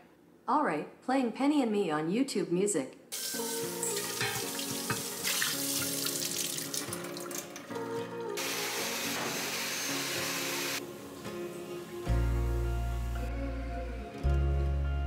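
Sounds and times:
water running in a sink: 3.2 - 7.8
dishes being washed: 3.2 - 7.9
soft music: 3.2 - 15.0.

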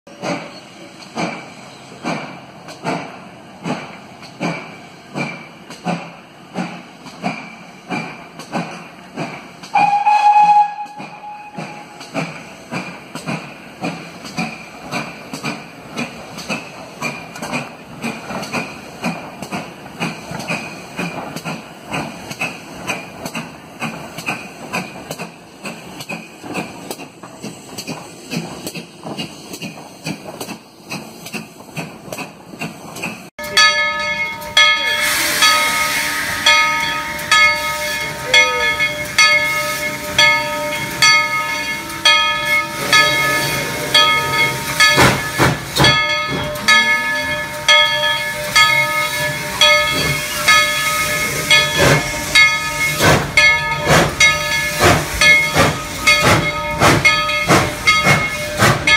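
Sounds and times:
steam locomotive exhaust chuffs: 0.1 - 58.9
steam whistle blast: 9.7 - 12.0, 34.9 - 36.6, 41.5 - 44.8.

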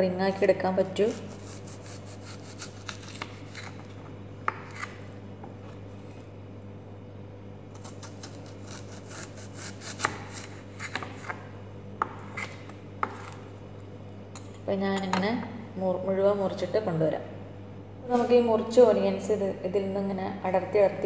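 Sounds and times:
knife slicing onion: 0.3 - 5.1, 7.7 - 13.5.

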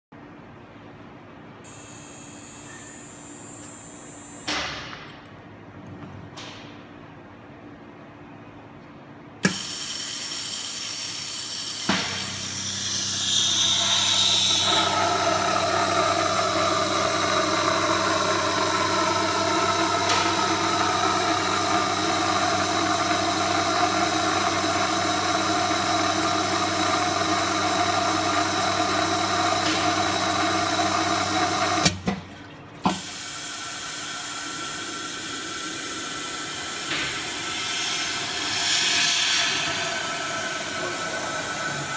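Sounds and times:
machine rushing hiss: 1.6 - 4.6, 9.4 - 31.8, 32.9 - 41.9
machine whine: 11.8 - 31.9, 34.6 - 41.9.

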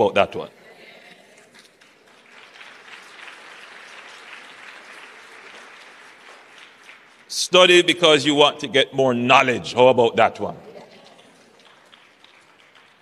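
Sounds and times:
audience applauding lightly: 1.1 - 7.8, 10.8 - 13.0.

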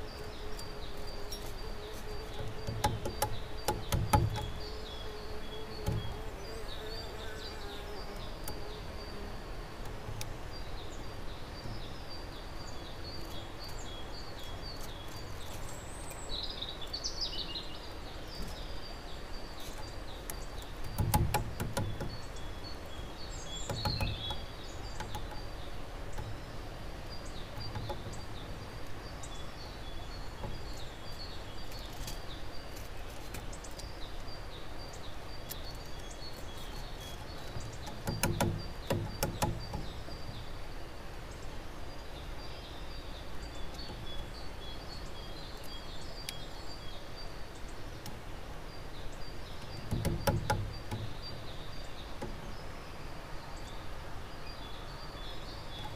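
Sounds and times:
small bird chirping: 0.0 - 40.6, 41.3 - 55.9
knocks: 2.4 - 4.6, 20.8 - 22.2, 23.6 - 25.4, 37.4 - 40.0, 49.6 - 51.2.

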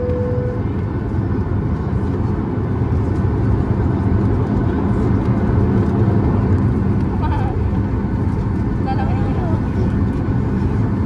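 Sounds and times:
jet engines droning in cabin: 0.0 - 11.0.

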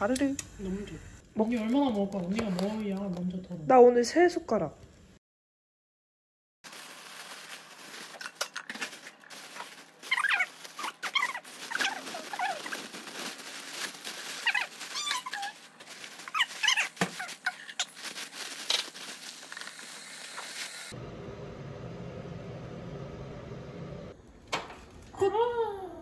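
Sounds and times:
plastic bag crinkling: 6.6 - 21.0.

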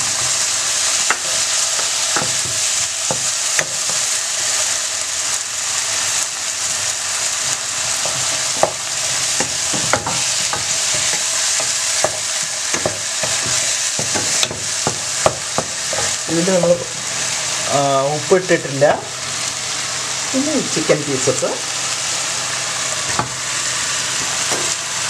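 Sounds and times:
spice paste sizzling in pan: 0.0 - 25.0
spoon scraping pan: 7.9 - 16.3.

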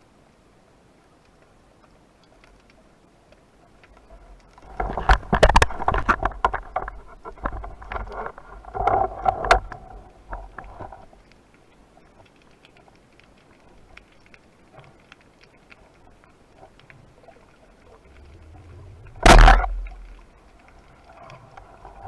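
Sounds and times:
faint water noise: 0.0 - 22.0
underwater speargun clicks and knocks: 19.0 - 20.2.

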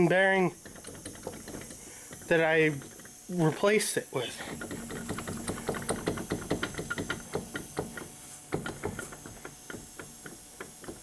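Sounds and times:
wheel hub clunking and clicking: 0.6 - 3.2, 4.5 - 11.0.

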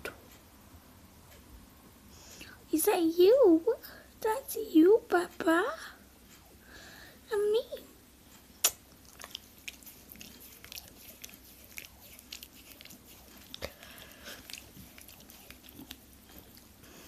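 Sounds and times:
dog licking wet smacks: 8.6 - 17.0.

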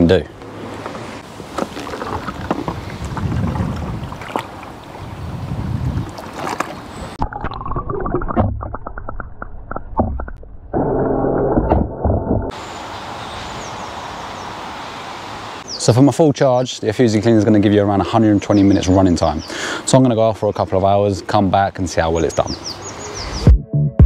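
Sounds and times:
water splashing and gurgling: 0.8 - 10.6.

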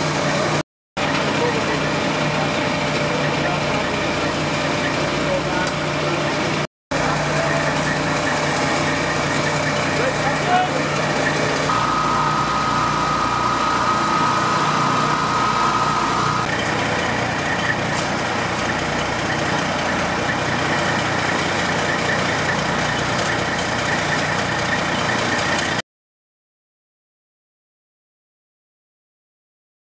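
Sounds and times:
fire engine idling: 0.0 - 25.8
thin high whine: 7.0 - 18.0.

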